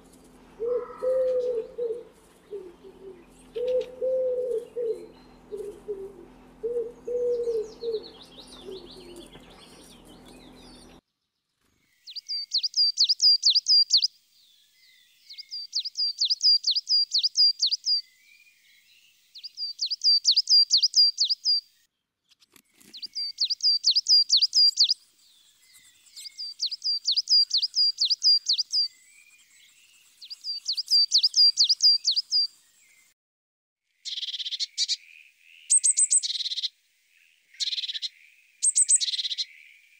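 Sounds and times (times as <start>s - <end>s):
dove cooing: 0.0s - 11.0s
songbird singing: 0.0s - 33.2s, 34.0s - 39.9s.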